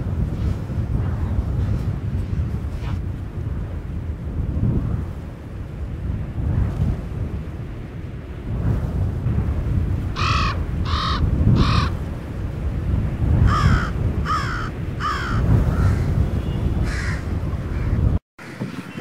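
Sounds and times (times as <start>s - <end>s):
steady low rumble: 0.0s - 19.0s
crow cawing: 10.2s - 12.0s, 13.5s - 16.1s, 16.8s - 18.7s.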